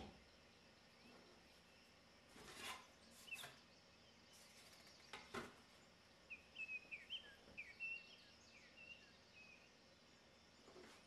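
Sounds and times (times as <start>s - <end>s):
faint high bird chirps: 0.0s - 11.0s.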